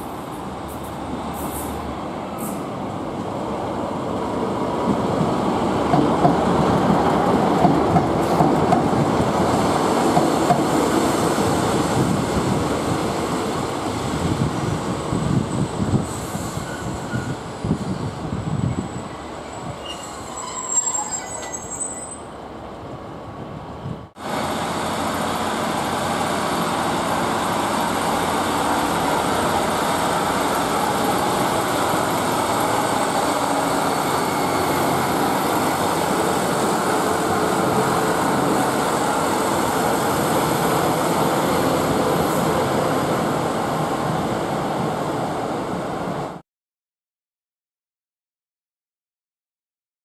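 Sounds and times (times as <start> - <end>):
train rumbling past: 0.0 - 46.4.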